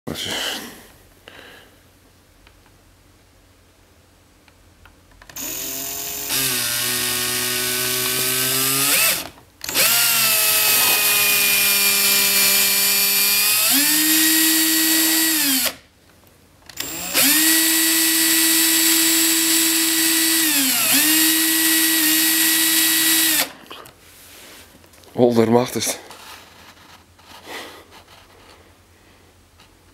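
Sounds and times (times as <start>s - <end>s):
cordless drill motor whining: 5.3s - 15.8s, 16.7s - 23.6s.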